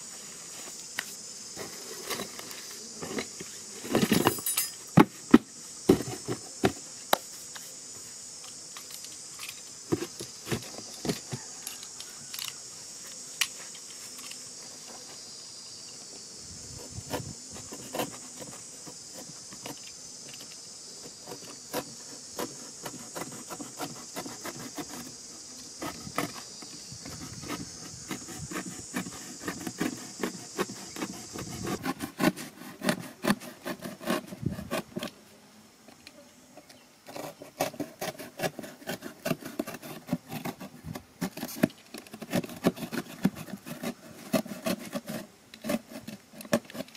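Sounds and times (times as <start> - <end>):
insects buzzing: 0.0 - 46.9
blade scraping cardboard box: 16.7 - 19.8, 21.1 - 25.2, 25.8 - 35.2, 37.1 - 46.9.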